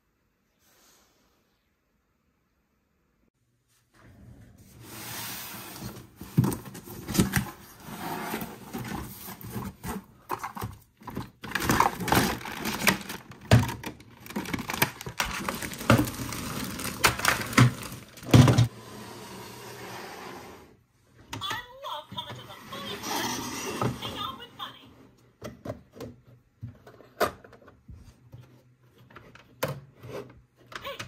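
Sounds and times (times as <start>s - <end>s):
cardboard rustling and scraping: 4.6s - 20.2s
plastic pieces knocking: 10.2s - 18.7s.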